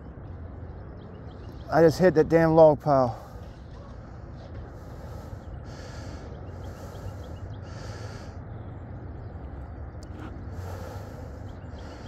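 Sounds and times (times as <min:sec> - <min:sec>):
man breathing hard through nose: 0:04.7 - 0:08.6, 0:10.2 - 0:12.0.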